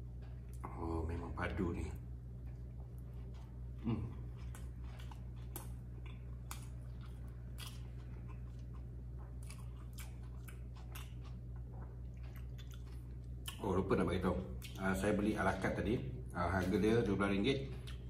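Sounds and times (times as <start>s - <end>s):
steady low hum: 0.0s - 18.0s
man chewing with wet smacks: 2.3s - 13.8s, 14.4s - 15.0s, 17.6s - 18.0s.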